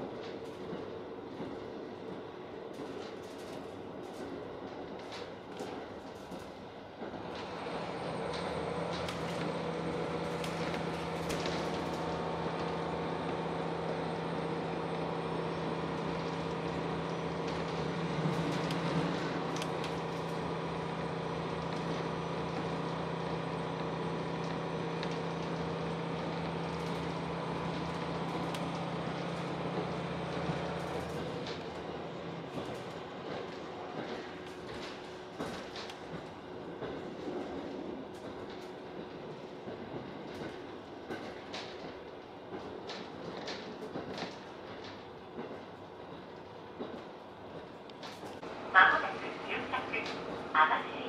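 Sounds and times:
rail running noise: 0.0 - 51.0
diesel engine drone: 7.0 - 37.0, 47.6 - 51.0.

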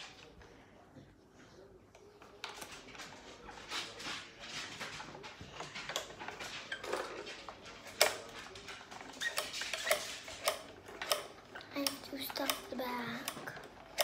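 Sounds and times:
plastic toy clicks and knocks: 5.8 - 14.0.

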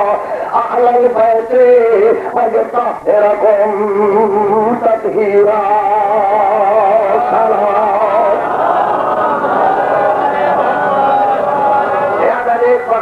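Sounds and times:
man chanting into microphone: 0.0 - 8.4.

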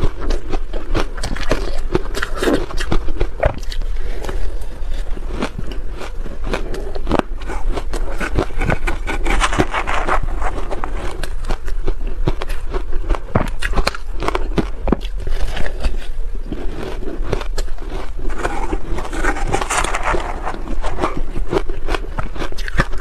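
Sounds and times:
spoon scraping ice in bowl: 8.2 - 11.3, 18.3 - 21.3
shaved ice crunching: 16.8 - 21.4.

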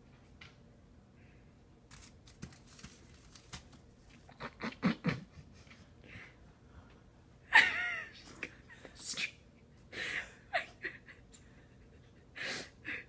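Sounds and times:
scratchy plastic rustles: 1.9 - 4.3.

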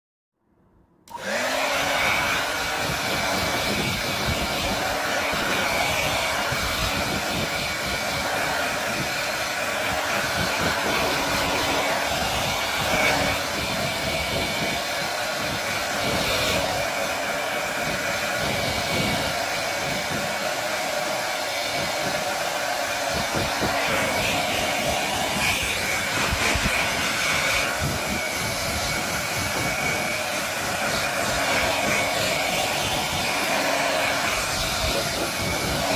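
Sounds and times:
hair dryer blowing air: 1.0 - 35.9.

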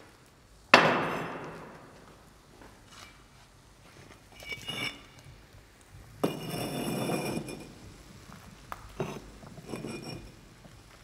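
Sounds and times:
ringing metal scrape: 4.3 - 5.2, 6.2 - 7.8, 9.0 - 10.3.

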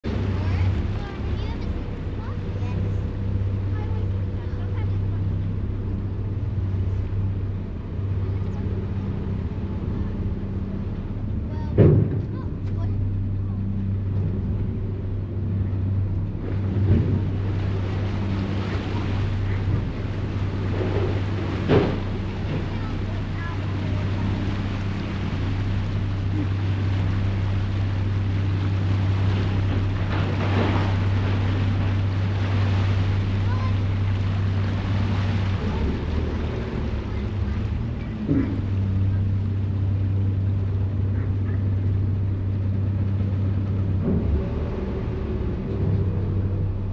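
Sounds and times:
churning propeller wash: 0.0 - 46.9
ferry diesel engine droning: 0.0 - 46.9
water rushing in wake: 0.0 - 46.9.

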